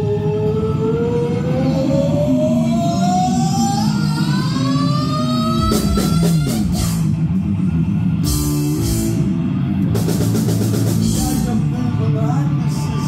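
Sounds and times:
heavy metal band playing live: 5.6 - 13.0.

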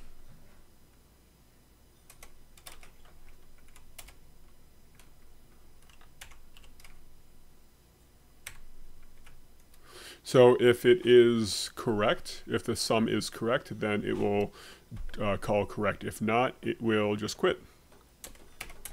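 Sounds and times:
computer keyboard typing: 2.1 - 4.2, 5.8 - 7.0, 8.4 - 9.8, 18.2 - 18.9.

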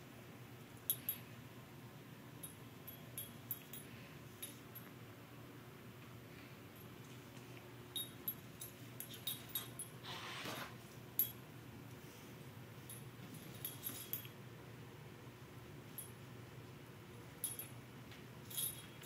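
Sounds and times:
light clicks and clinks: 0.8 - 1.4, 2.4 - 5.0, 6.0 - 10.0, 11.1 - 12.0, 12.8 - 14.4, 17.1 - 19.0.

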